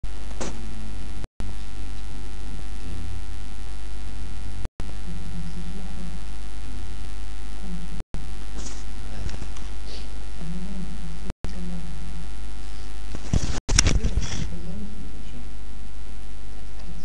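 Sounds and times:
electrical mains hum: 0.0 - 17.0.

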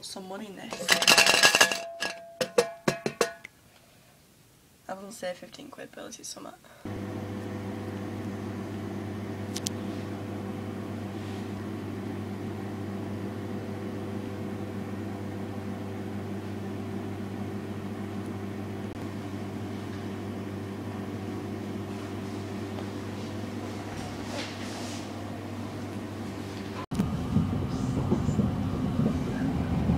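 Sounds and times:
low mechanical hum: 6.8 - 29.9.

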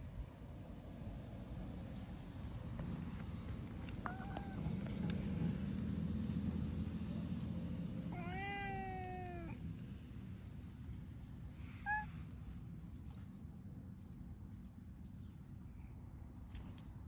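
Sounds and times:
cat meowing: 4.0 - 4.7, 8.1 - 9.6, 11.8 - 12.2.

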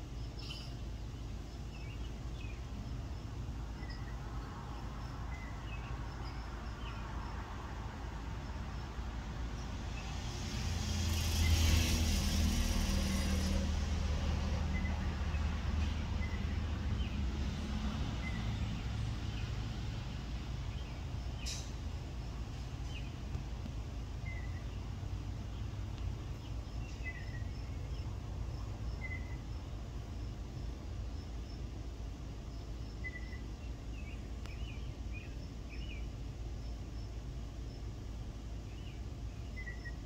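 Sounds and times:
faint high chirps: 0.2 - 1.0
vehicle passing: 3.1 - 29.7.

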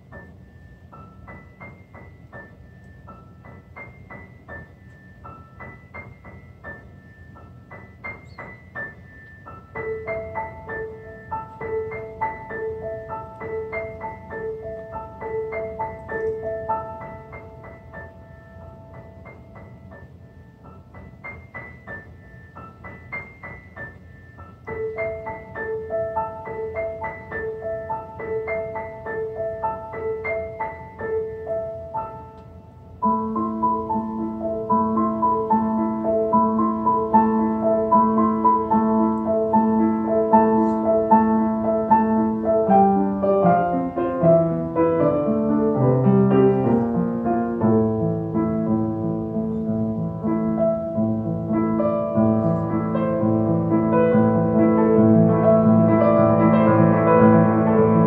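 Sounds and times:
solo grand piano: 0.0 - 58.0.

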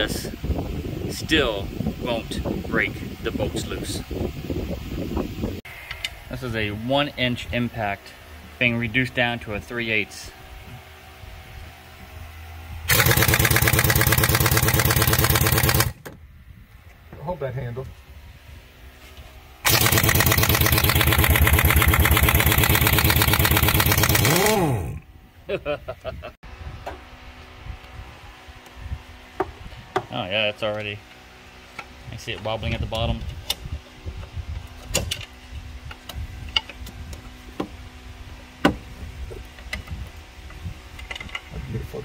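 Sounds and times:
impact wrench hammering: 12.9 - 16.0, 19.6 - 25.0.

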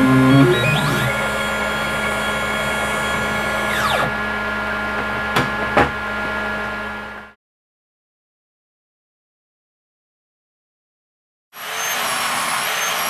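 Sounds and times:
end mill cutting metal rumble: 0.0 - 7.3
milling machine humming: 0.0 - 7.3
spindle whine: 0.0 - 7.3.

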